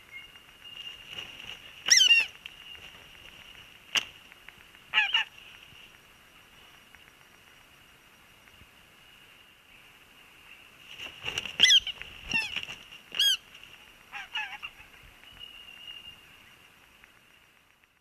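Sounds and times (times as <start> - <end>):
eagle calling: 0.0 - 3.6, 4.4 - 5.6, 11.6 - 16.6
sharp click: 2.0 - 6.1.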